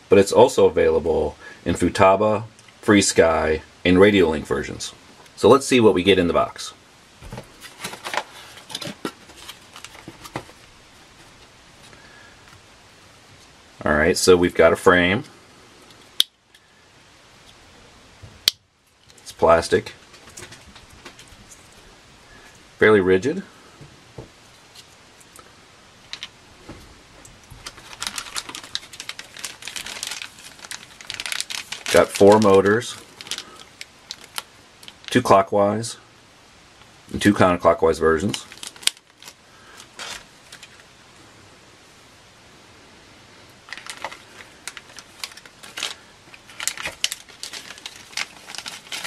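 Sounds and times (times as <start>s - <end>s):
faint room hiss: 0.0s - 49.0s
plastic bags crinkling: 7.2s - 12.0s, 27.3s - 35.3s, 38.2s - 40.9s, 43.6s - 49.0s.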